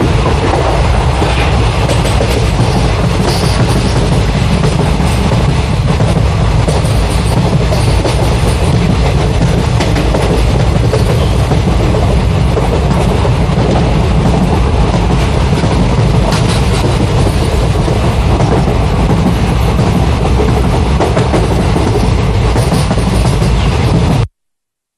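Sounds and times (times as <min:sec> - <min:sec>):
train rumbling on rails: 0:00.0 - 0:24.3.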